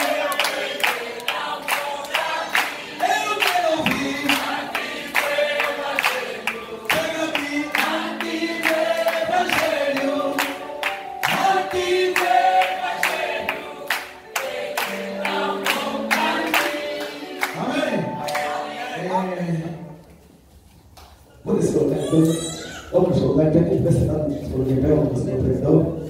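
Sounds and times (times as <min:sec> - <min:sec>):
group of voices singing: 0:00.0 - 0:19.9
man singing into a microphone: 0:03.0 - 0:04.4.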